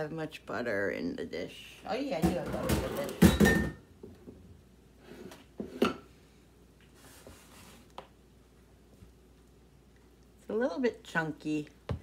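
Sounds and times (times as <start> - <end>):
dishware knocking and clinking: 2.2 - 3.8.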